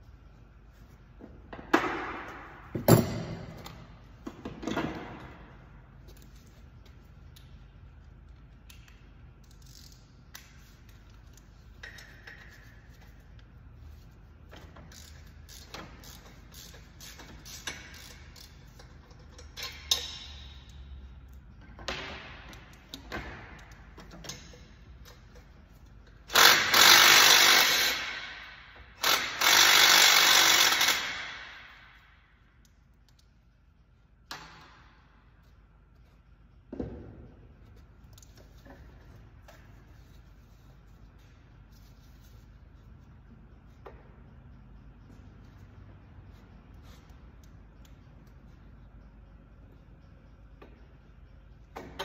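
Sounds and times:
clinks and knocks of tools: 14.5 - 26.2
handheld power tool running: 26.3 - 28.3, 29.0 - 31.4.

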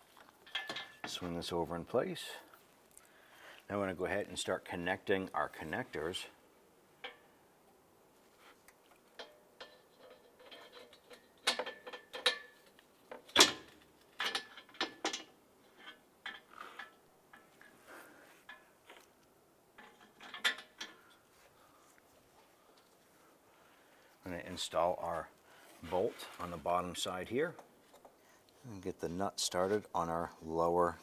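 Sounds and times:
metallic clicks and knocks: 0.2 - 1.2, 8.7 - 17.7, 19.8 - 21.3.

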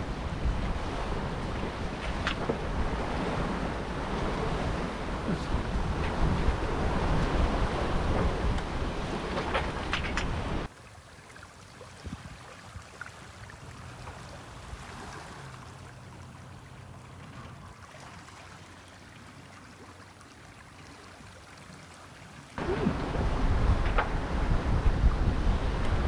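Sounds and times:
wind buffeting microphone: 0.0 - 10.7, 12.0 - 12.9, 22.6 - 26.0
water rushing past hull: 0.0 - 26.0.

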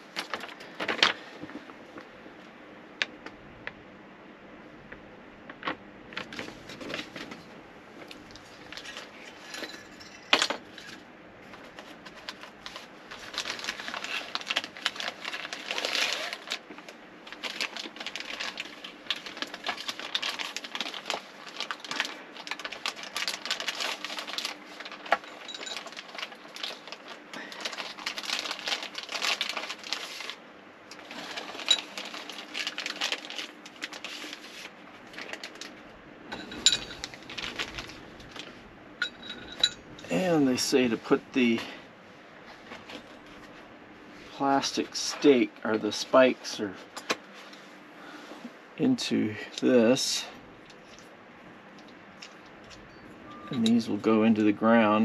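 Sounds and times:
plastic wrapping rustling: 0.0 - 2.0, 5.6 - 41.6
faint steady hum: 0.0 - 55.0.

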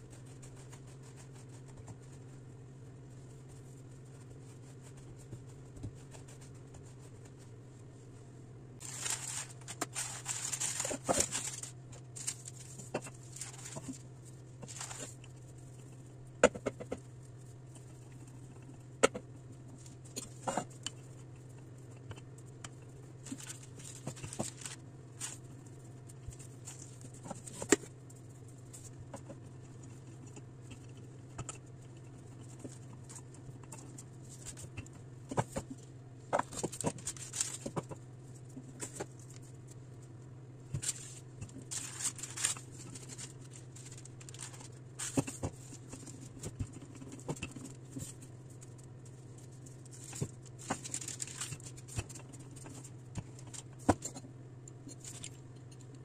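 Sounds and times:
rolling pin rolling dough: 0.0 - 7.6
steady low hum: 0.0 - 56.0
baking paper crinkling: 8.8 - 16.0, 23.1 - 30.9, 36.4 - 39.7, 40.7 - 54.2.

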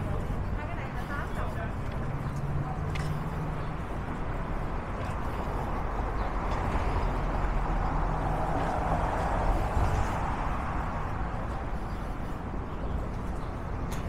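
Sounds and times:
vehicle passing: 0.0 - 13.8
city street traffic: 0.0 - 14.0.

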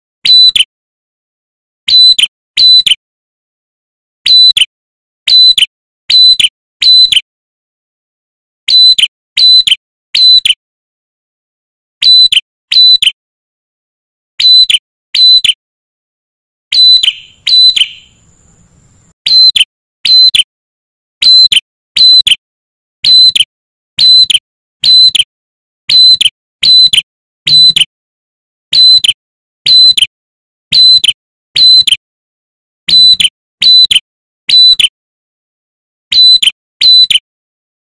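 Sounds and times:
bird calling sharp piercing notes: 0.2 - 0.7, 1.9 - 3.0, 4.2 - 4.7, 5.3 - 7.2, 8.7 - 10.6, 12.0 - 13.2, 14.4 - 15.6, 16.7 - 20.5, 21.2 - 22.4, 23.0 - 25.3, 25.9 - 27.9, 28.7 - 30.1, 30.7 - 32.0, 32.9 - 34.9, 36.1 - 37.2.

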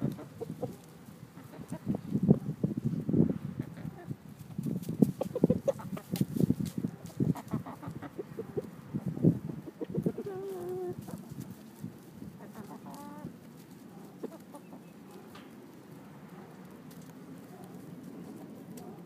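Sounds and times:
chickens clucking: 0.0 - 19.0
chicken drawn-out call: 12.4 - 13.4.

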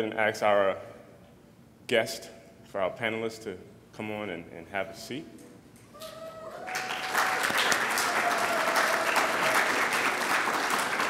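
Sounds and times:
audience applauding: 6.5 - 11.0.

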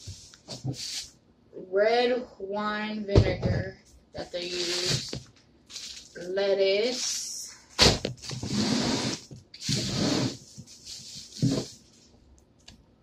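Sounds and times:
plastic packaging rustling: 4.4 - 12.2.

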